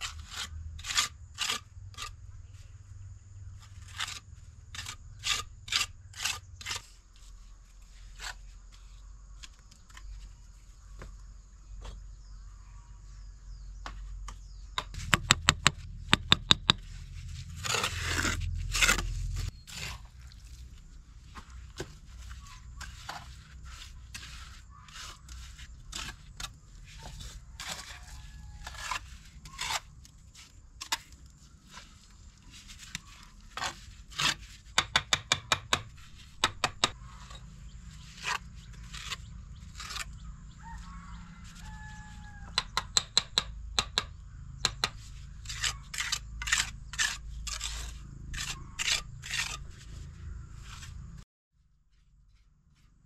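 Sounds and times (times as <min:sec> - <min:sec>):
sharp taps and knocks: 0:13.8 - 0:16.8, 0:42.5 - 0:45.0
scraping: 0:14.8 - 0:34.9, 0:35.8 - 0:42.5.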